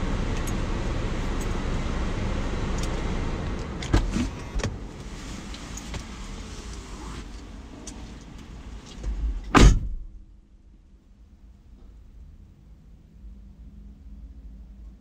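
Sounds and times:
steady car interior noise: 0.0s - 15.0s
car door shutting: 2.9s - 4.9s, 8.9s - 10.1s.

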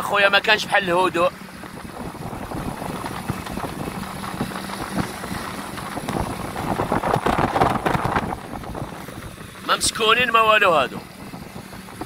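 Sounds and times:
wind buffeting microphone: 0.3s - 12.0s
small motorbike engine running: 1.4s - 9.9s.

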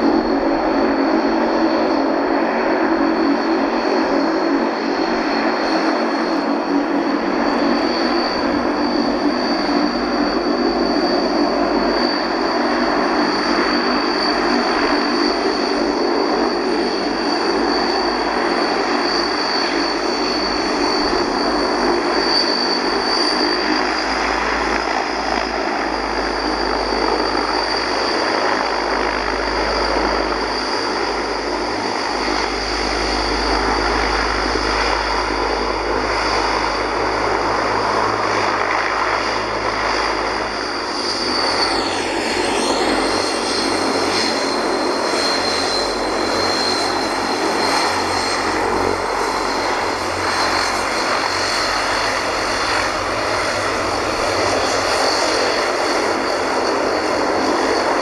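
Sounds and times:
high turbine whine: 0.0s - 58.0s
propeller drone: 0.0s - 58.0s.

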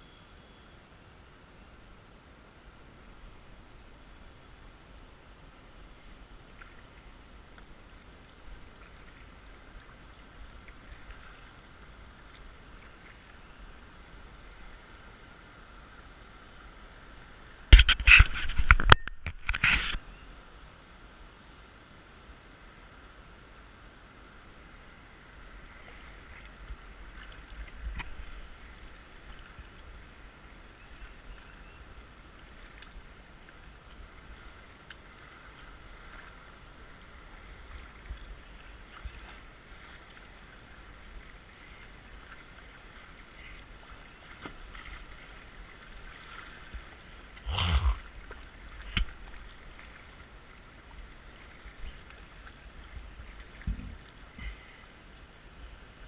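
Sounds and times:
water washing around kayak: 32.0s - 56.0s.

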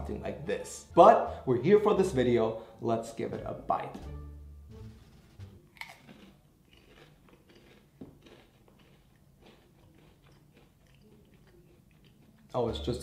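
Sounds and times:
chewing crunch: 5.6s - 12.8s
potato chip crunching: 5.6s - 12.8s.

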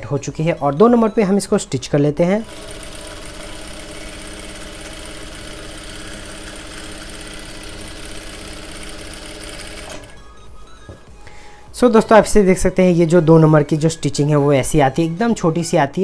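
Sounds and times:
sewing machine running: 2.4s - 10.2s.

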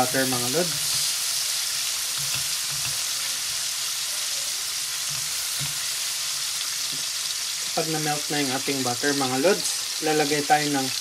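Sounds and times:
butter sizzling in a pot: 0.0s - 11.0s.

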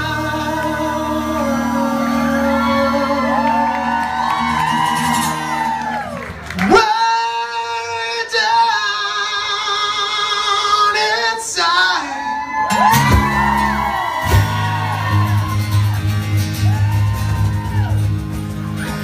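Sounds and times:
man singing high note: 0.0s - 4.0s
low bass notes: 0.0s - 6.1s, 12.8s - 19.0s
guitars playing: 0.0s - 6.6s, 12.7s - 19.0s.

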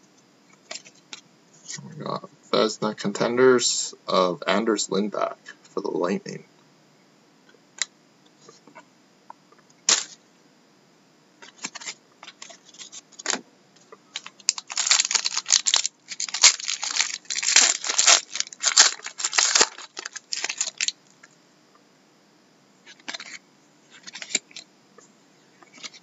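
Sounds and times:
card pack wrapper tearing and crinkling: 9.9s - 10.2s, 14.2s - 21.0s.

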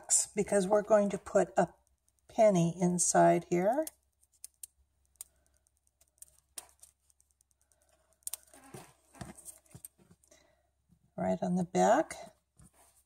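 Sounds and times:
small handling and rustling noises: 0.5s - 11.1s, 12.2s - 13.0s
fingers clicking adhesive dots: 3.3s - 8.6s.

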